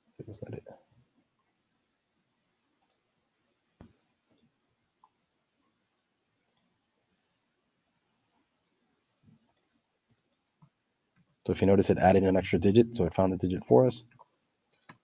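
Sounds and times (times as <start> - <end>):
computer mouse clicks: 2.8 - 3.0, 4.2 - 5.2, 6.4 - 6.7, 9.4 - 10.5, 14.1 - 15.0.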